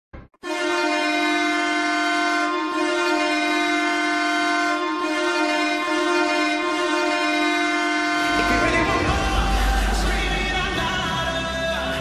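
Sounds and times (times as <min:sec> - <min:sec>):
goal horn blasting: 0:00.4 - 0:09.1.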